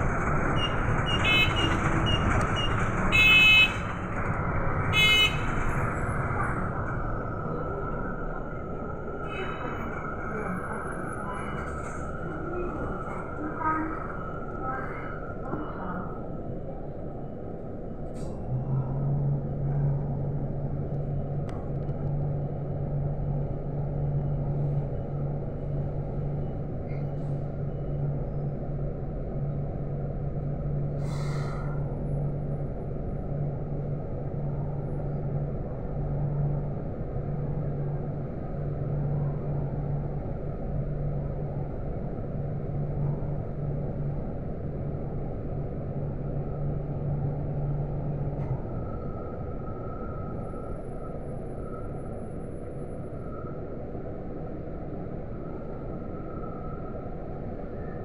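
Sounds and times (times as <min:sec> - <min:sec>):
bus engine idling: 0:00.0 - 0:15.0
soft rumble: 0:03.9 - 0:58.0.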